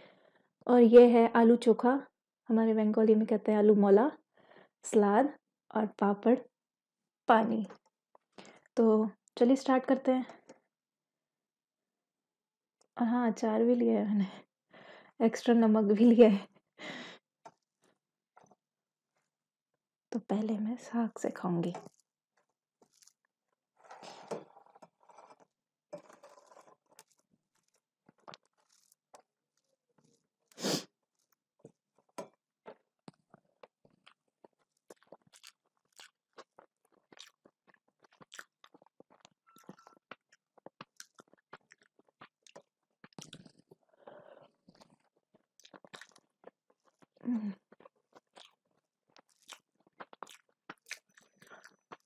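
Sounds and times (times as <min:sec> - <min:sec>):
wet chewing and mouth sounds: 0:21.5 - 0:23.6, 0:25.3 - 0:52.0.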